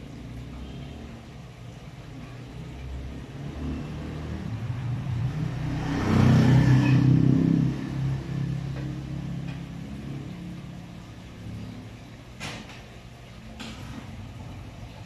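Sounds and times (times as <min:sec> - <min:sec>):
motor vehicle passing: 0:02.2 - 0:12.0.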